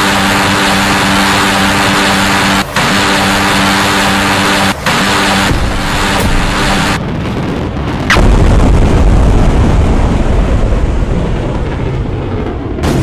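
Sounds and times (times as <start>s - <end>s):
loud boom with deep rumble: 5.5s - 13.0s.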